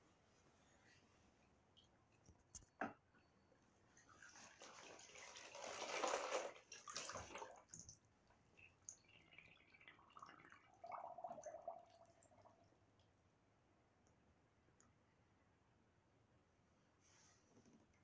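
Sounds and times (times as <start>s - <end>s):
bathwater sloshing: 4.0s - 8.0s
water gurgle: 4.3s - 12.8s
faint water drips: 6.5s - 13.4s.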